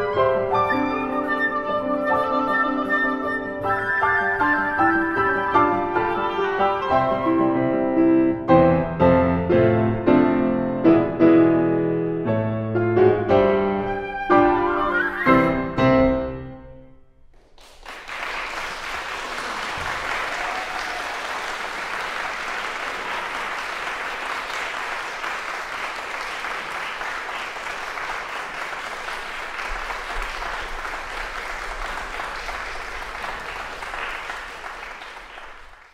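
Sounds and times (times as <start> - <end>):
audience applauding: 17.3 - 35.9.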